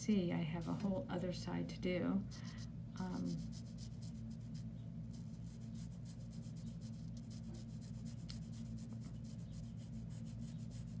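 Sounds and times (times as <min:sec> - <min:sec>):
low steady hum: 0:00.0 - 0:11.0
marker scratchy rubbing on paper: 0:03.0 - 0:11.0.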